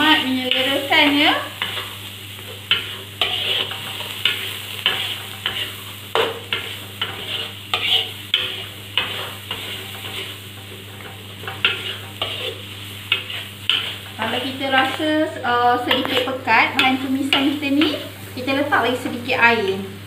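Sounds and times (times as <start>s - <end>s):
metal spatula scraping a wok: 0.0s - 15.0s
paste sizzling: 0.0s - 19.4s.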